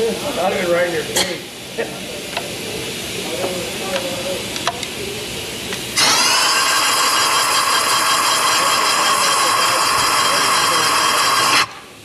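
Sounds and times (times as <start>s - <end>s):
compressed air hissing: 2.6s - 12.0s.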